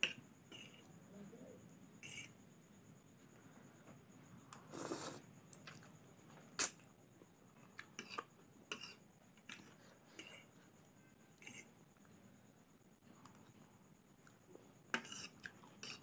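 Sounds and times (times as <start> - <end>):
fork clicking and scraping on plate: 7.8 - 10.5, 14.9 - 16.0.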